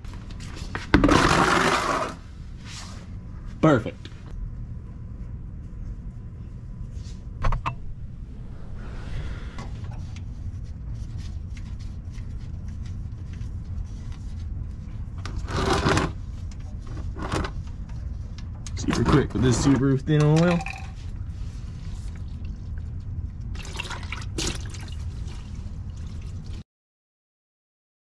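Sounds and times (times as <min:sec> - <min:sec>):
steady low rumble: 0:02.3 - 0:15.4, 0:21.0 - 0:23.6.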